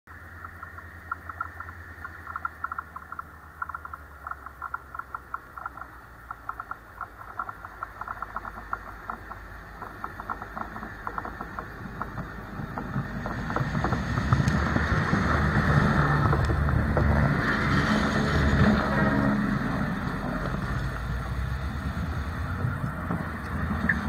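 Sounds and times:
sharp rapid ticks: 0.1s - 17.2s
diesel locomotive rumbling: 0.1s - 24.0s.

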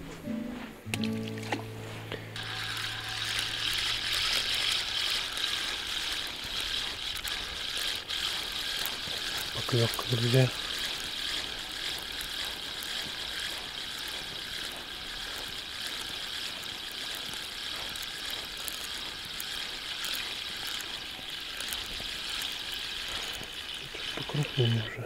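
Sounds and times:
steady high hiss: 0.0s - 8.1s, 13.9s - 25.0s
fishing reel clicks: 2.4s - 25.0s.

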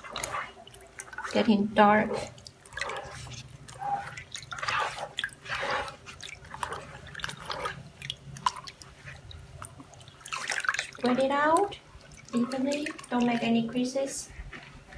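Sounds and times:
liquid sloshing and dripping in a vat: 0.0s - 14.9s.

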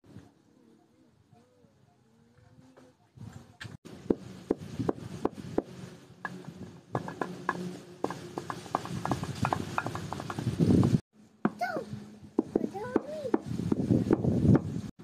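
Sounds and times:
pestle knocking in mortar: 7.0s - 10.5s.

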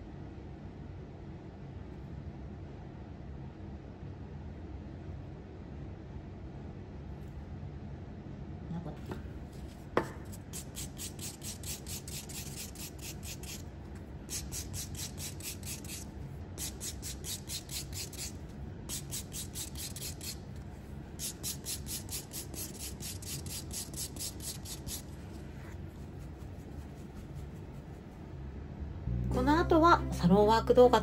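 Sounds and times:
nail file rasping on fingernails: 10.4s - 13.6s, 14.3s - 20.4s, 21.2s - 25.2s.

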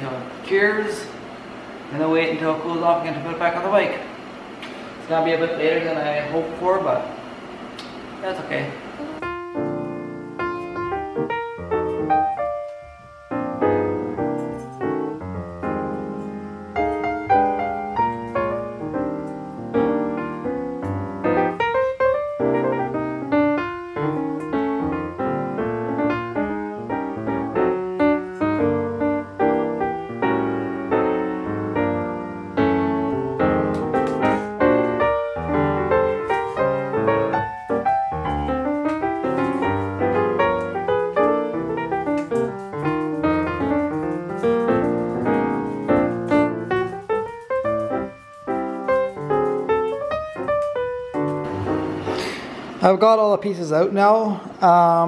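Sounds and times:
piano music quick notes: 9.0s - 55.0s.

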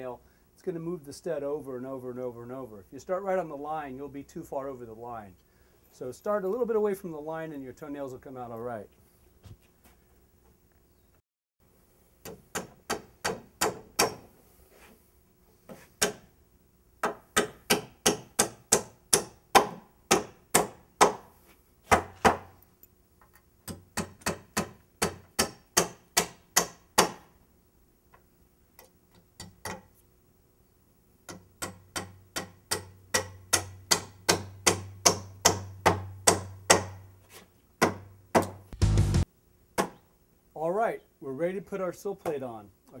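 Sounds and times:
hammer driving nails into wood: 12.2s - 14.3s, 16.0s - 16.3s, 17.0s - 21.3s, 23.7s - 27.3s, 31.3s - 37.0s.

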